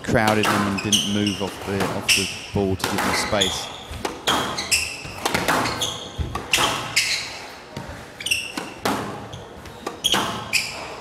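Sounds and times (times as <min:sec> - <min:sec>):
shoes squeaking on court: 0:00.5 - 0:11.0
ball smacking walls: 0:02.8 - 0:07.0
racket hitting ball: 0:02.8 - 0:07.1, 0:08.4 - 0:10.6.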